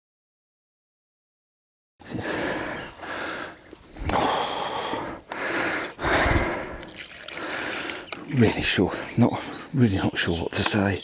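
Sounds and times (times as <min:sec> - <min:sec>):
man panting heavily: 0:02.0 - 0:07.9, 0:08.9 - 0:09.7.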